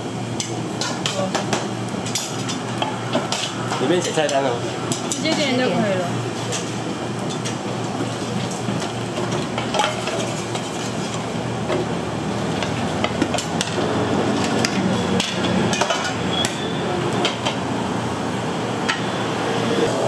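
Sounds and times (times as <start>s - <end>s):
metal utensils clinking on pots: 0.4s - 5.6s, 6.4s - 11.8s, 14.4s - 17.6s.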